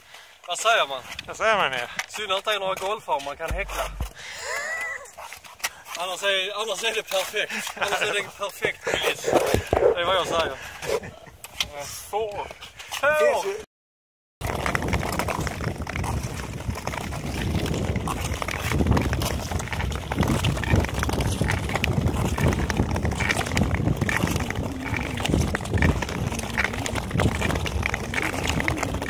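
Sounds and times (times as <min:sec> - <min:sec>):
skate blades scraping on ice: 0:05.0 - 0:11.1, 0:14.4 - 0:29.0
wind buffeting microphone: 0:14.4 - 0:29.0.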